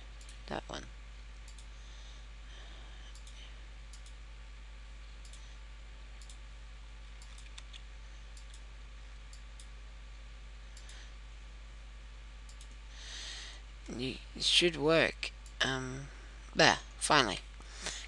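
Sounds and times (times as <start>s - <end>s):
low electrical hum and hiss: 0.0s - 18.0s
computer mouse clicking: 3.1s - 4.2s, 5.2s - 5.4s, 6.2s - 6.4s, 7.2s - 8.6s, 12.5s - 12.8s.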